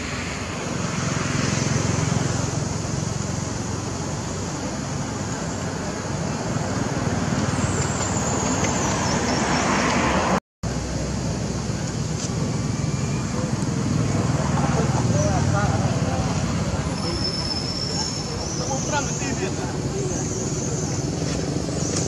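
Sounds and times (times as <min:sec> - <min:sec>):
vehicle passing: 0:00.0 - 0:11.6
road traffic noise: 0:00.0 - 0:22.0.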